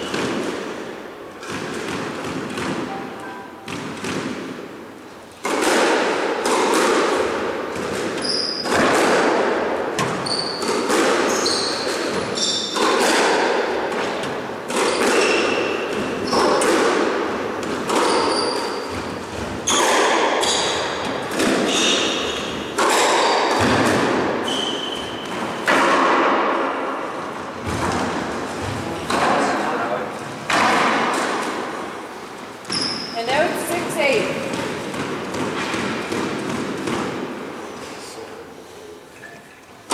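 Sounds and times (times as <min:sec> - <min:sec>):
sneakers squeaking on wooden floor: 0:00.0 - 0:00.6, 0:07.8 - 0:08.9, 0:10.0 - 0:13.0, 0:14.0 - 0:16.8, 0:17.5 - 0:23.8, 0:24.4 - 0:25.7, 0:32.5 - 0:37.1
ball hitting walls: 0:00.0 - 0:03.0, 0:03.6 - 0:04.7, 0:05.3 - 0:31.9, 0:34.0 - 0:37.5
racquet striking ball: 0:00.0 - 0:37.6.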